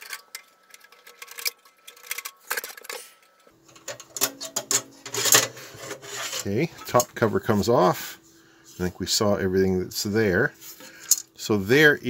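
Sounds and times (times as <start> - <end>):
metal scraping: 0.0 - 8.9.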